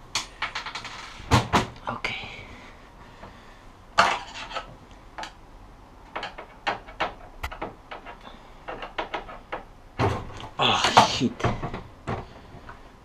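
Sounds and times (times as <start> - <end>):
sharp clicks and knocks: 4.0 - 5.4, 6.0 - 12.8.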